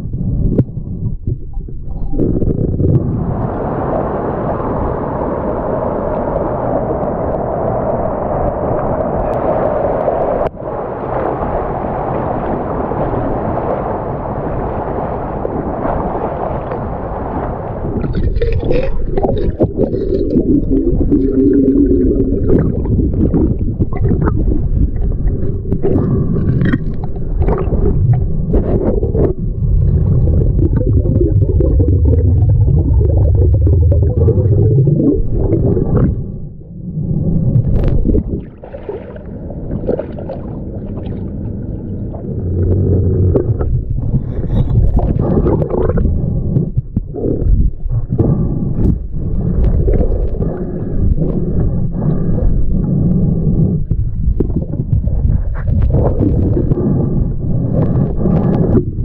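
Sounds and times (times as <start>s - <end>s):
underwater rumble and gurgling: 0.0s - 59.0s
underwater clicks: 17.9s - 36.4s, 37.2s - 59.0s.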